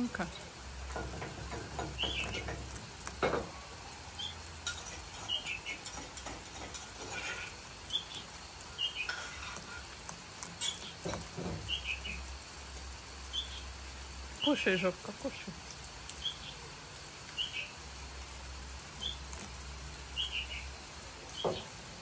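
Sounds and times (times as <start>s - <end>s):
rain pattering: 0.0s - 22.0s
bird chirps: 1.8s - 2.6s, 5.2s - 5.9s, 11.6s - 12.2s, 13.3s - 13.7s, 17.4s - 17.8s, 20.1s - 20.7s.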